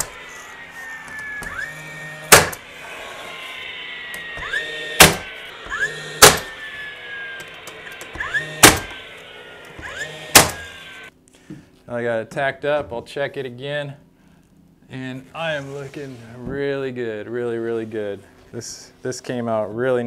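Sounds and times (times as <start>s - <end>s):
motor whine: 0.0s - 11.1s
nail gun firing: 2.2s - 2.6s, 5.0s - 5.3s, 6.1s - 6.6s, 8.2s - 9.0s, 9.8s - 10.7s.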